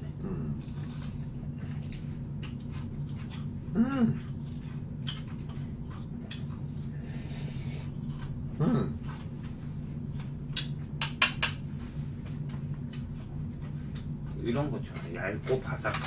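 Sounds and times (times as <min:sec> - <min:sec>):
slurping and chewing noodles: 0:00.0 - 0:10.4
steady low hum: 0:00.0 - 0:16.0
person humming: 0:00.2 - 0:00.6, 0:03.7 - 0:04.2.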